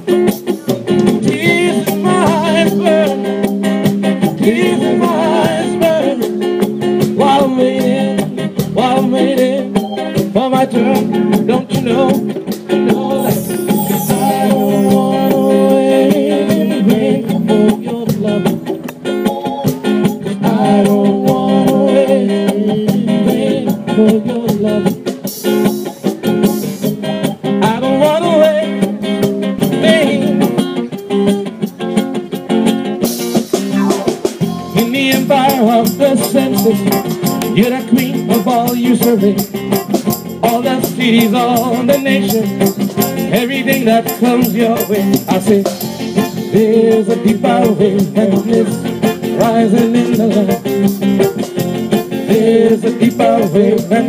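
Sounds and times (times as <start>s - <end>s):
drum kit: 0.0s - 31.4s, 32.0s - 54.0s
acoustic guitar: 0.0s - 54.0s
congas: 0.0s - 54.0s
electric keyboard: 13.2s - 17.7s, 33.4s - 35.2s.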